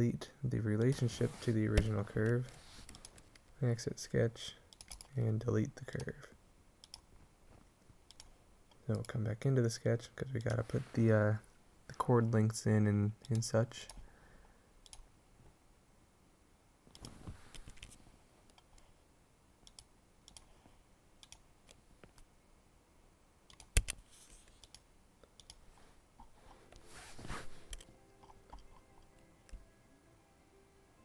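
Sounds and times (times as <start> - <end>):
soft rustles: 0.9 - 3.3, 17.1 - 18.5, 25.6 - 27.9
computer mouse clicks: 4.7 - 5.1, 6.8 - 7.1, 8.1 - 8.3, 16.9 - 18.9, 19.6 - 20.6, 21.2 - 22.3, 23.5 - 25.6.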